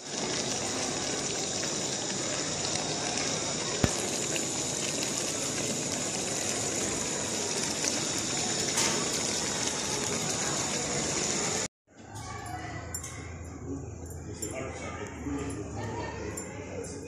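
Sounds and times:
food sizzling and bubbling in pot: 0.0s - 12.2s.

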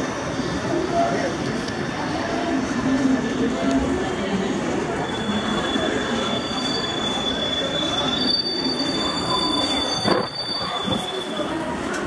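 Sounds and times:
train wheels squealing: 4.9s - 11.8s.

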